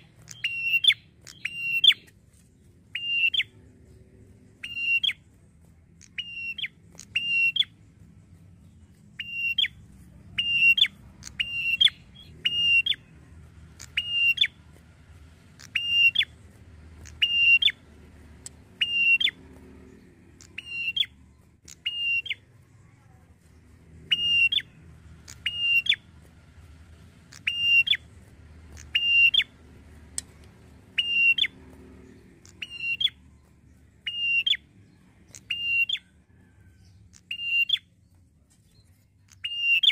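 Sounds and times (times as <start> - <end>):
bird calling sharp whistles: 0.3 - 2.1, 2.9 - 3.5, 4.6 - 5.2, 6.0 - 7.7, 9.2 - 9.8, 10.4 - 13.0, 13.8 - 14.6, 15.6 - 16.4, 17.0 - 17.8, 18.8 - 19.4, 20.5 - 22.4, 24.1 - 24.7, 25.3 - 26.0, 27.3 - 28.0, 28.7 - 29.5, 30.9 - 31.6, 32.5 - 33.2, 34.0 - 34.6, 35.4 - 36.1, 37.2 - 37.9, 39.4 - 39.9.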